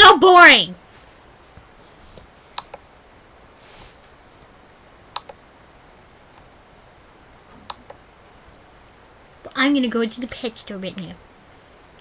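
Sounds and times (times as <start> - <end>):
faint background hiss: 0.0 - 12.0
sharp light clicks: 5.2 - 5.4.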